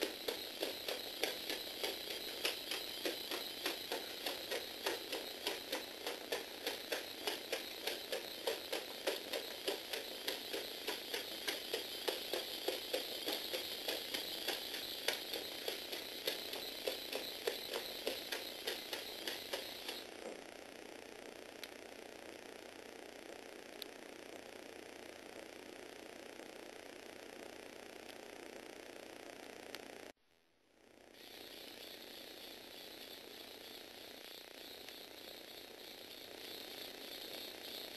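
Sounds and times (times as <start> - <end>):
motor and gears whirring: 0.0 - 20.5, 31.1 - 37.9.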